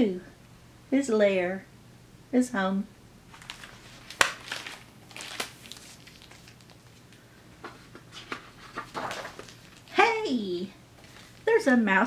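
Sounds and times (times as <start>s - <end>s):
paper rustling: 3.3s - 10.2s, 11.0s - 11.5s
book clicks and taps: 3.4s - 5.5s.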